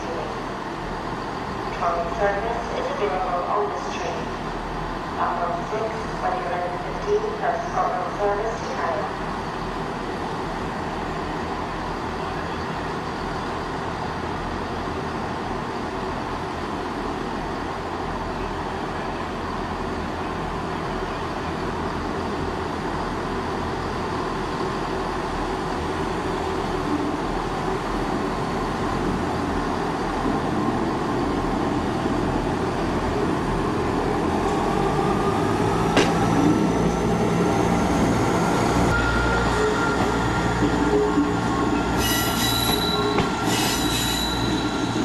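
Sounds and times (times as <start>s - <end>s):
train engine and wheel rumble: 0.0s - 45.0s
wheel squeal: 42.0s - 45.0s.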